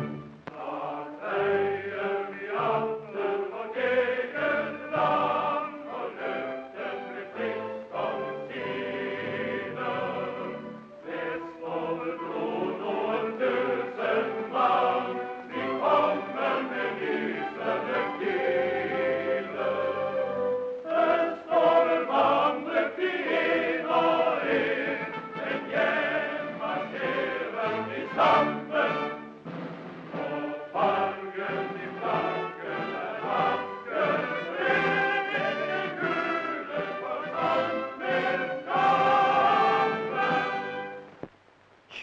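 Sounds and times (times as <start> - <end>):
choir singing: 0.0 - 29.5, 30.1 - 41.1.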